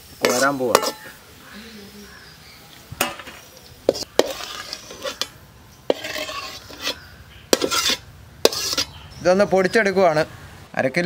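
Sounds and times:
ladle clinking on steel plate: 0.2 - 1.1
metal ladle scraping frying pan: 0.2 - 1.2, 3.0 - 9.0.

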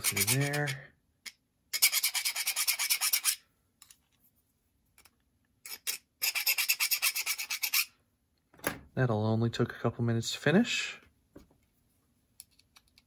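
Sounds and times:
hand file rasping on metal: 0.0 - 0.8, 1.8 - 3.4, 5.7 - 7.9.

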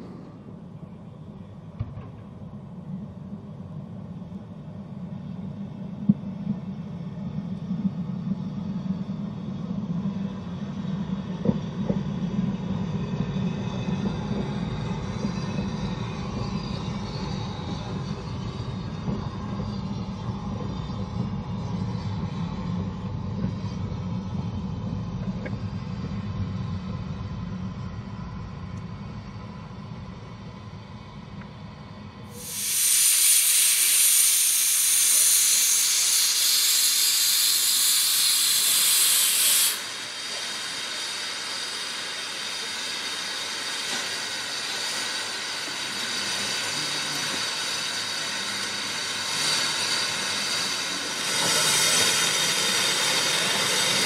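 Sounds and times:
steam train rumbling past: 0.0 - 3.1, 3.8 - 54.0
locomotive blowing off steam: 32.3 - 54.0.

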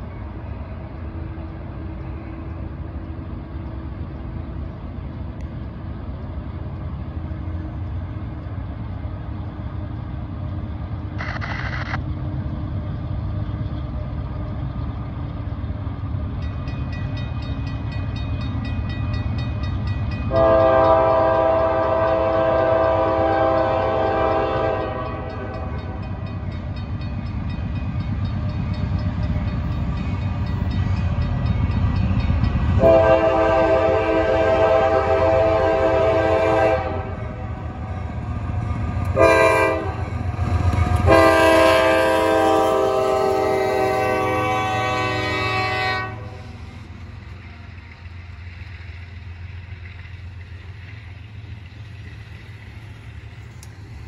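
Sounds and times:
locomotive air horn blasts: 20.3 - 25.9, 32.8 - 37.5, 39.1 - 40.1, 41.0 - 46.4.

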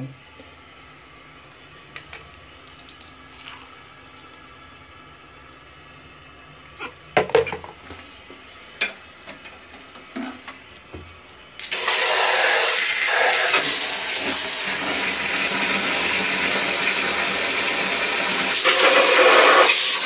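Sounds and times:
water jet hissing from sprayer: 11.6 - 20.0.

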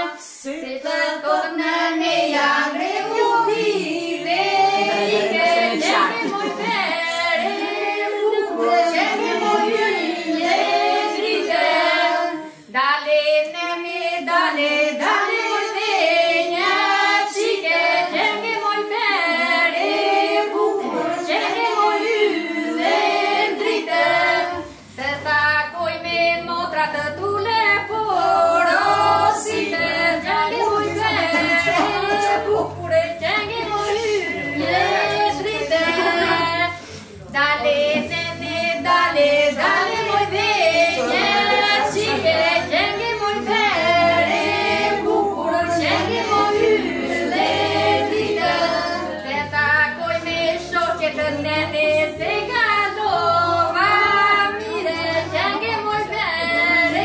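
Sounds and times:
women singing together: 0.0 - 57.0
low rhythmic bass: 19.1 - 57.0.

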